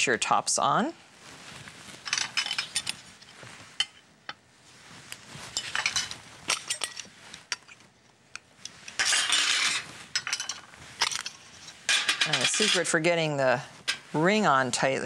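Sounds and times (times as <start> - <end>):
metal lids clinking on glass jars: 2.1 - 3.0, 5.5 - 7.7, 9.0 - 13.0.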